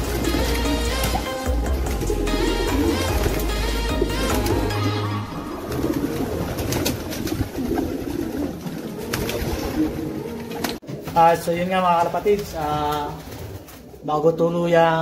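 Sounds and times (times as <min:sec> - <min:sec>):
background music: 0:00.0 - 0:11.0
pigeons cooing: 0:00.0 - 0:11.1
wings flapping: 0:00.0 - 0:14.0.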